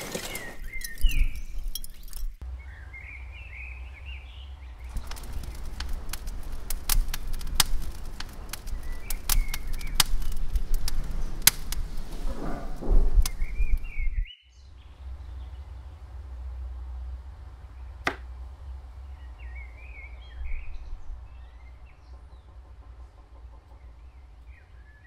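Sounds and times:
charcoal fire crackling and popping: 0.0 - 14.1
birds chirping: 0.0 - 16.2, 17.4 - 25.0
low rumble of flame: 0.3 - 25.0.

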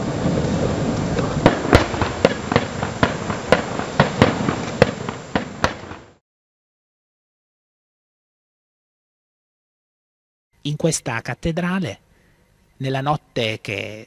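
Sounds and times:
fireworks bangs and cracks: 0.0 - 6.2
fireworks rumble: 0.0 - 6.2.

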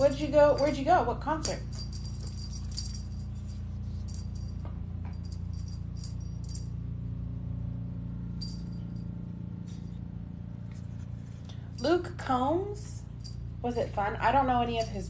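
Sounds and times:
small jingle bell jingling: 0.0 - 6.9, 8.4 - 9.2, 12.9 - 15.0
steady low hum: 0.0 - 15.0.

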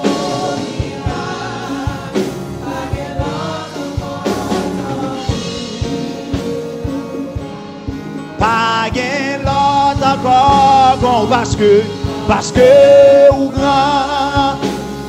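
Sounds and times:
gospel worship band: 0.0 - 15.0
singers holding sustained notes: 0.0 - 15.0.

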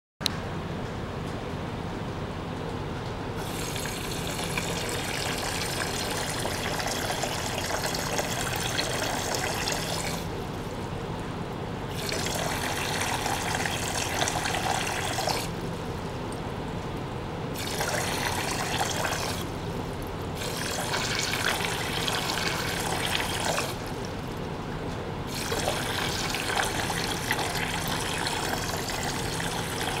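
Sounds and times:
pump hum: 3.3 - 30.0
water splashing into tank: 3.4 - 10.7, 11.9 - 15.7, 17.5 - 24.5, 25.3 - 30.0.

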